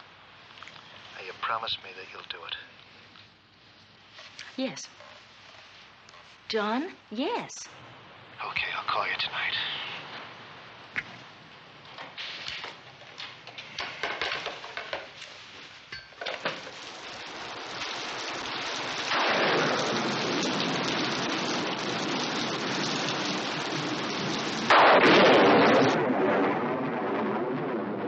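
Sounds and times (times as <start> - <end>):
heavy steady rain: 0.0 - 28.0.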